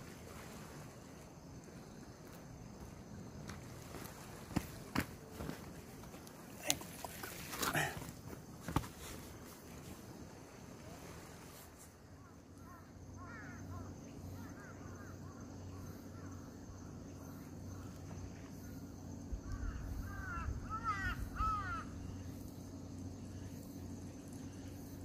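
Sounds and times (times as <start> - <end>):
crow cawing: 12.2 - 15.4, 19.4 - 22.0.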